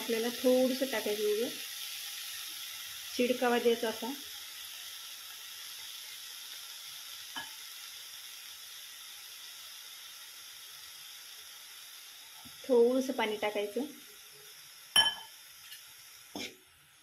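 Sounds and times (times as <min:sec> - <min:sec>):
leaves sizzling in oil: 0:00.0 - 0:17.0.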